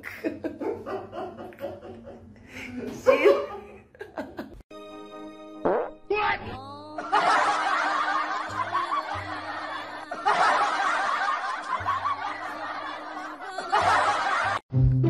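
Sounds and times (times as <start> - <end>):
people laughing: 0.0 - 4.6, 6.9 - 14.6
quiet background music: 4.8 - 14.6.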